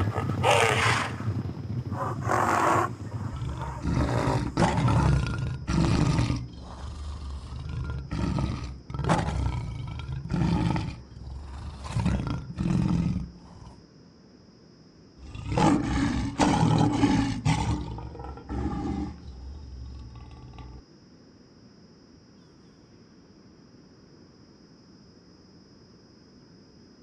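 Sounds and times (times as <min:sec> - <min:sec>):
lions roaring and snarling: 0:00.0 - 0:13.8, 0:15.2 - 0:20.8.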